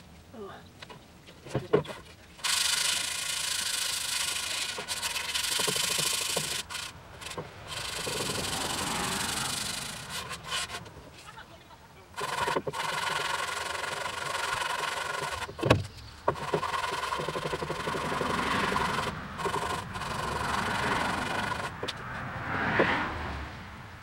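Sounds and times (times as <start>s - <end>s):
sandpaper rasping on metal: 2.4s - 11.4s, 12.2s - 15.6s, 16.3s - 21.8s.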